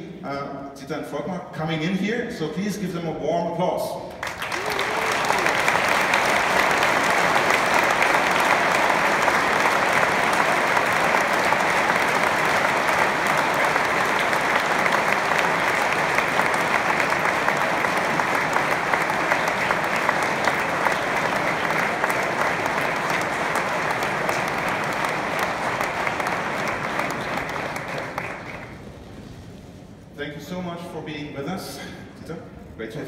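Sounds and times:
large audience applauding: 4.1s - 29.4s.

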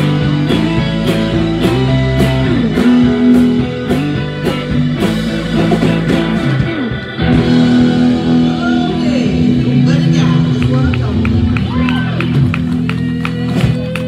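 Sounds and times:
bass guitar: 0.0s - 14.0s
drum and cymbal hits: 0.0s - 14.0s
electric guitar bending notes: 0.0s - 14.0s.

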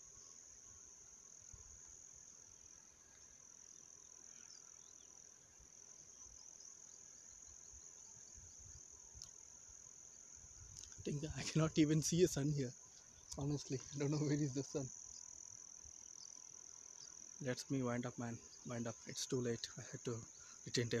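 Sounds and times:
crickets trilling: 0.0s - 21.0s.

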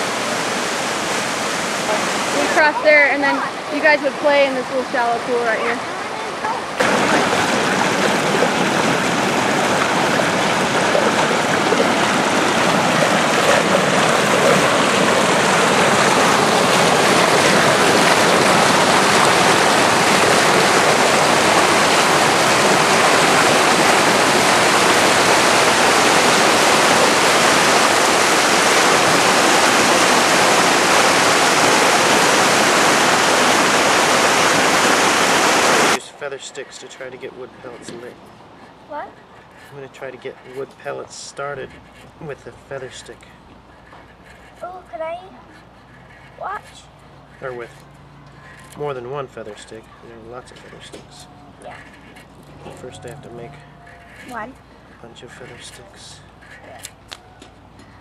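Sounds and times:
stream rushing over rock: 0.0s - 36.0s.

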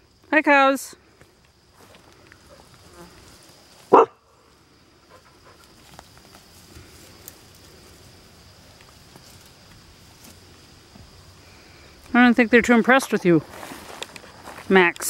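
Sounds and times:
rustling through tall grass: 1.7s - 12.0s, 13.3s - 14.8s
dog barking: 3.9s - 4.2s.

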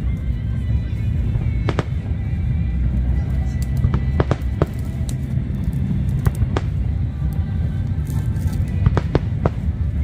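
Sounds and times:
continuous low rumble: 0.0s - 10.0s
music playing: 0.0s - 10.0s
fireworks cracking: 1.2s - 2.2s, 3.5s - 7.0s, 7.9s - 10.0s.

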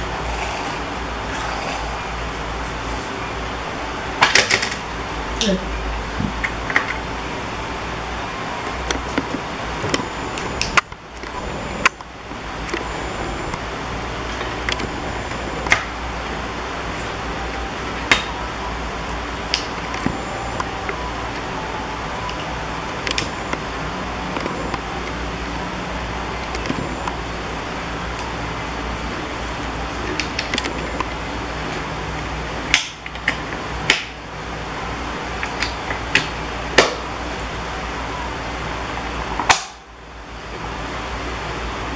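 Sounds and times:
background hum and hiss: 0.0s - 41.9s.

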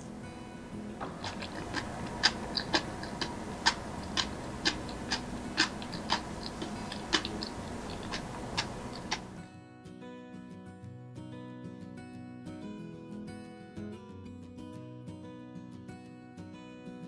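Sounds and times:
low steady hum: 0.0s - 9.4s
light regular ticking: 0.6s - 9.4s.

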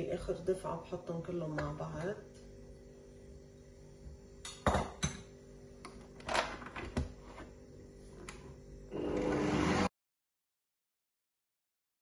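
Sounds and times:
faint steady hum: 0.0s - 9.4s.

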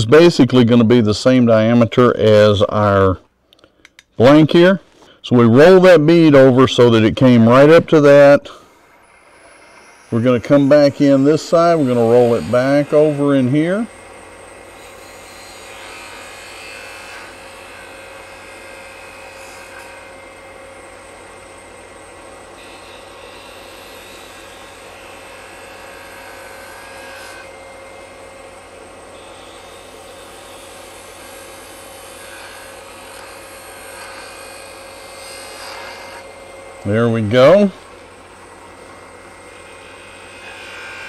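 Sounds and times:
wood lathe humming: 8.9s - 41.0s.

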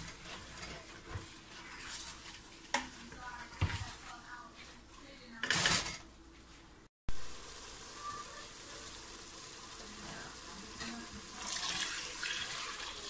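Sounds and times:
water pouring into metal pot: 11.3s - 13.0s.

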